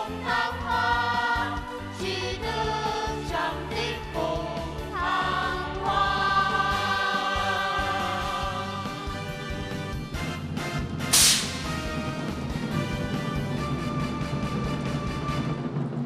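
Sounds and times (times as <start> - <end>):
choir singing: 0.0 - 9.4.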